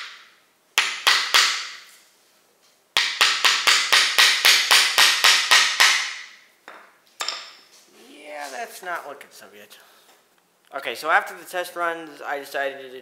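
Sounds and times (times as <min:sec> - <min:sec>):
hammer striking nail: 0:00.0 - 0:01.9, 0:03.0 - 0:06.4.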